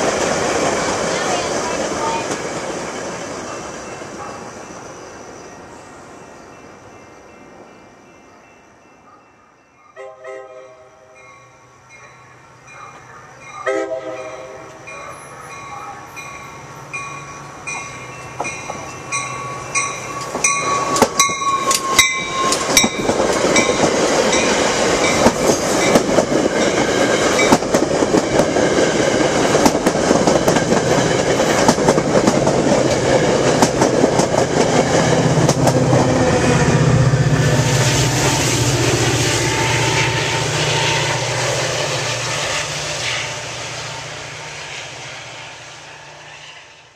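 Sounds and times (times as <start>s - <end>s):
train wheels clattering on rails: 0.0s - 4.8s, 14.6s - 43.3s
locomotive horn toots: 10.0s - 11.2s, 13.6s - 16.2s.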